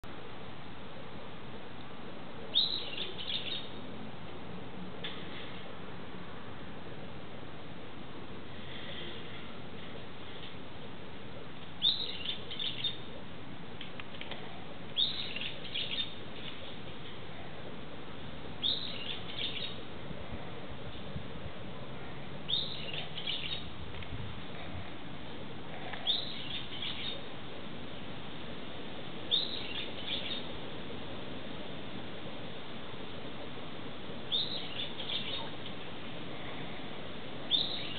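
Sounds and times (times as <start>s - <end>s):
background hiss: 0.0s - 37.9s
bird calling: 2.5s - 3.8s, 11.8s - 13.1s, 15.0s - 16.6s, 18.6s - 19.8s, 22.5s - 23.7s, 25.8s - 27.3s, 29.3s - 30.5s, 34.3s - 35.6s, 37.5s - 37.9s.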